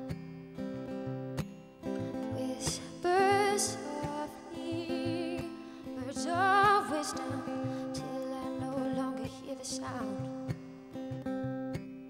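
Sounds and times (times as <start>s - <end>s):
acoustic guitar: 0.0s - 12.0s
woman singing with vibrato: 2.2s - 10.5s.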